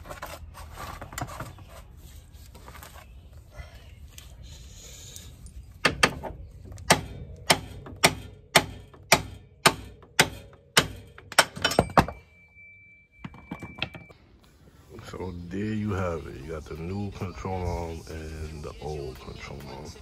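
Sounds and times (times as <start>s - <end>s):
hammer striking steel: 6.9s - 12.2s.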